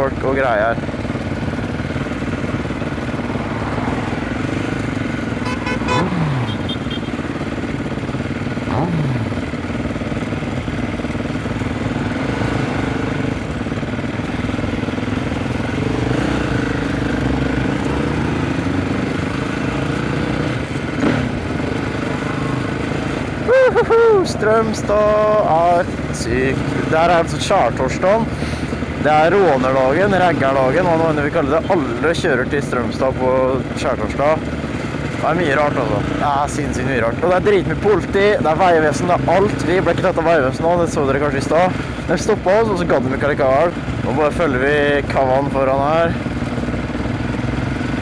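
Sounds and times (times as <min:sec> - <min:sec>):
motorcycle engine running: 0:00.0 - 0:48.0.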